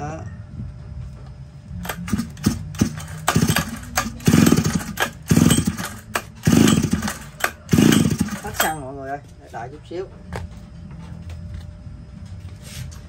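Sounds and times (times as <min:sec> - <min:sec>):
small petrol engine revving: 0:01.8 - 0:08.8.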